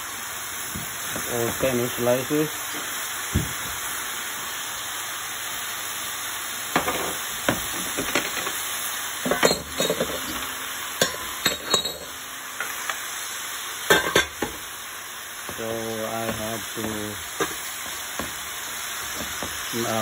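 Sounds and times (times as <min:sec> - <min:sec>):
leaves sizzling in pan: 0:00.0 - 0:20.0
utensil scraping and clinking: 0:09.2 - 0:13.0.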